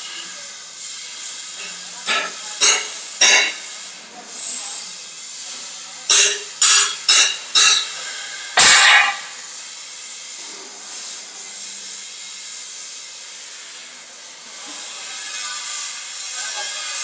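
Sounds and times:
workshop hiss and hum: 0.0s - 17.0s
steel sheet clattering: 8.6s - 9.4s.

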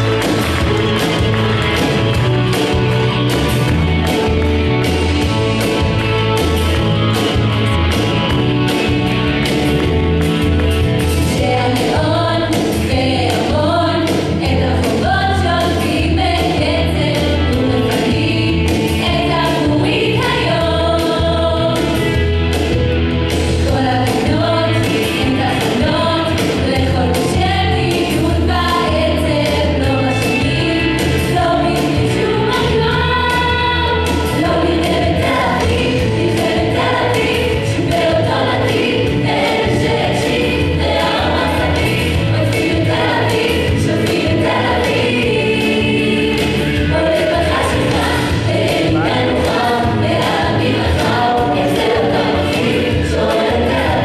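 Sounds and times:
group singing: 11.2s - 22.2s, 23.6s - 54.0s.

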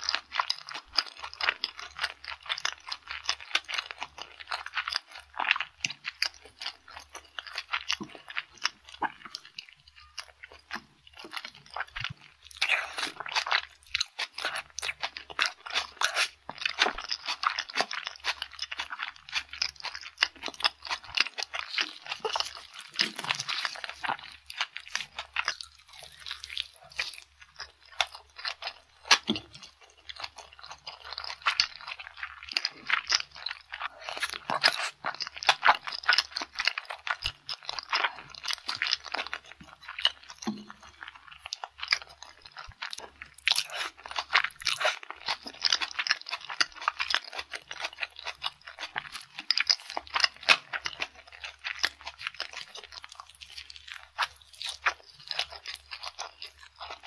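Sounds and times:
person chewing food: 0.0s - 57.0s.

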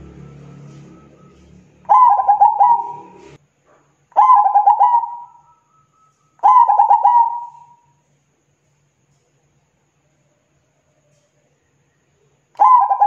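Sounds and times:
dove cooing: 0.0s - 3.4s, 4.2s - 5.5s, 6.4s - 7.8s, 12.6s - 13.0s.

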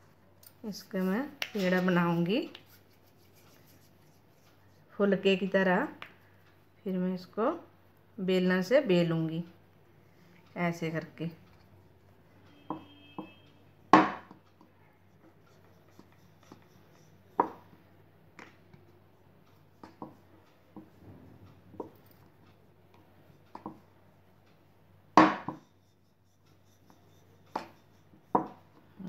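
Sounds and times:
rolling pin rolling dough: 14.0s - 17.8s, 19.5s - 24.6s, 25.2s - 29.0s.

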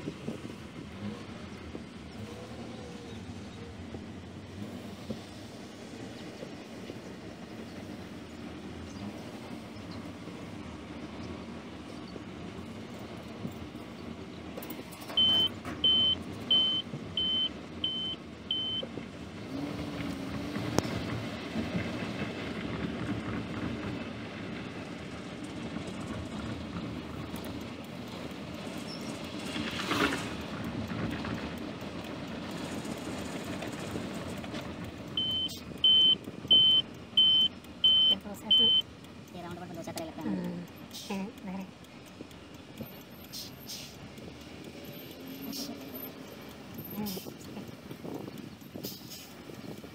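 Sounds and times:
car road and engine rumble: 0.0s - 49.9s
high electronic beeps: 15.2s - 18.8s, 35.2s - 38.9s.

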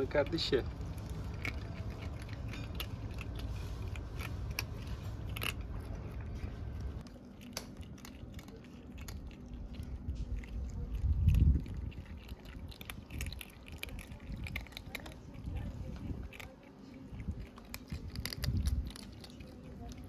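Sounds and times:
kittens crunching kibble: 0.0s - 20.0s
low rumble: 0.6s - 16.5s.

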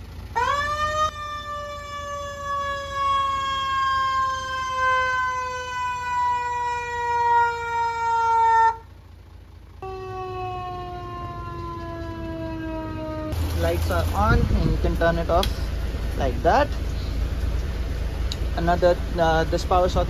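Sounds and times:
fire truck siren wailing: 0.0s - 19.9s.

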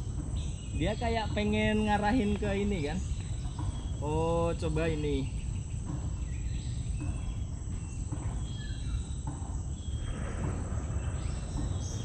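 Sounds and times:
insects trilling: 0.0s - 12.0s
low rumble: 9.8s - 12.0s.

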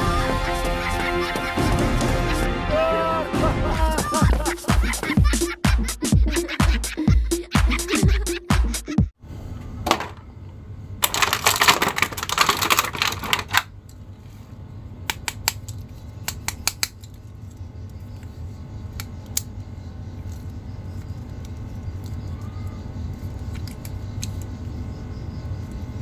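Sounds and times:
dance music with thumping beat: 3.4s - 9.1s
plastic bag crinkling: 11.0s - 13.7s.

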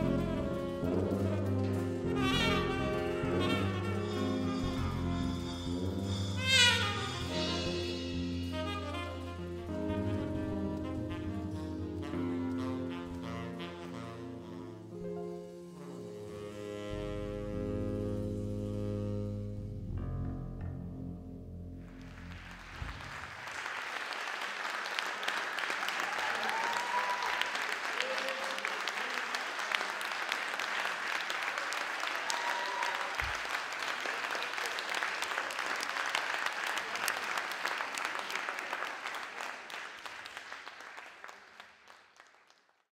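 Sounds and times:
band's low note: 0.0s - 14.6s, 15.2s - 23.5s
audience applauding: 21.9s - 42.9s.

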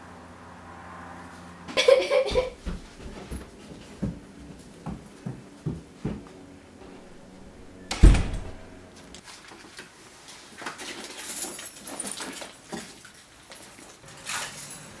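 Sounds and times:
door banging shut: 6.8s - 8.9s.

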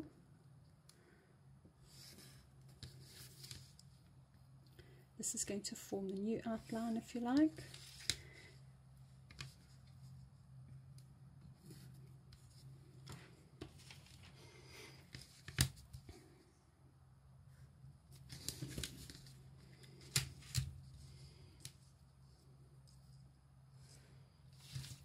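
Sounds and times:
paper rustling: 18.2s - 20.7s.

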